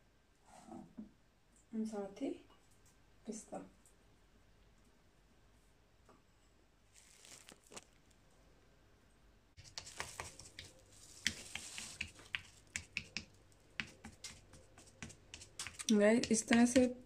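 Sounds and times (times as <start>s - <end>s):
chopped nuts sprinkled: 7.0s - 8.0s.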